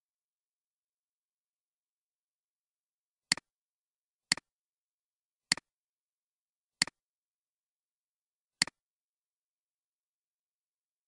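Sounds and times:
computer mouse clicks: 5.5 - 5.7.

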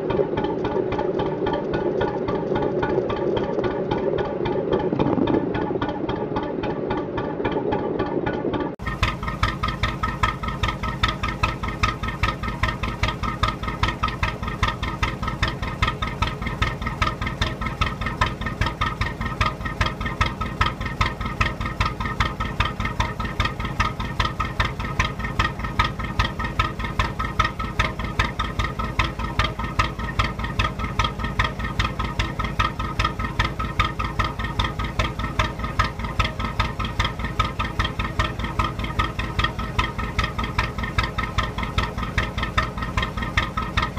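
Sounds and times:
diesel boat engine running: 0.0 - 43.9.

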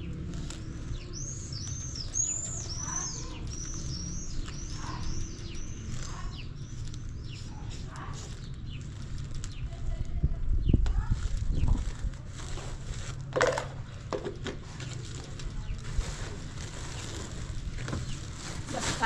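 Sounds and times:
songbird chirping: 0.0 - 10.0.

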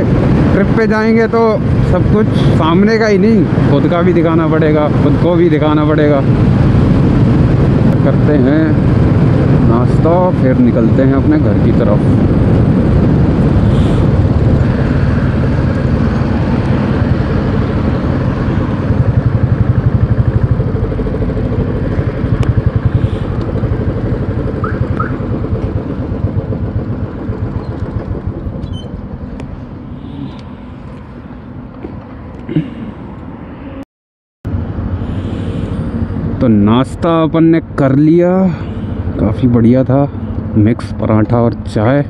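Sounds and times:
single-cylinder motorcycle engine: 12.2 - 31.0.

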